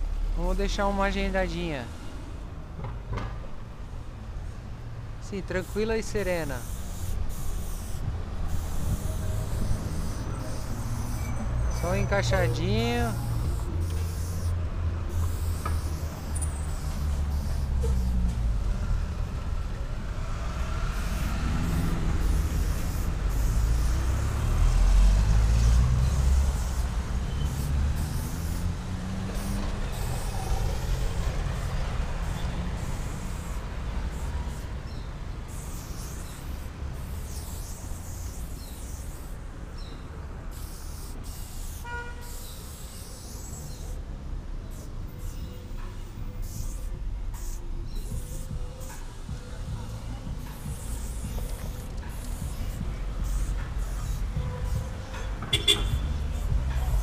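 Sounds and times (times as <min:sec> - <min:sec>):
spray paint can hissing: 0:05.4 - 0:44.1, 0:44.7 - 0:57.0
large vehicle engine passing: 0:16.5 - 0:32.9.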